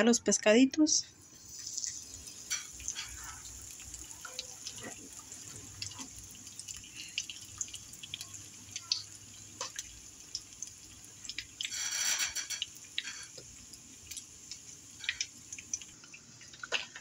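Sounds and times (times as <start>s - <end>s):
fish frying in oil: 1.2s - 17.0s.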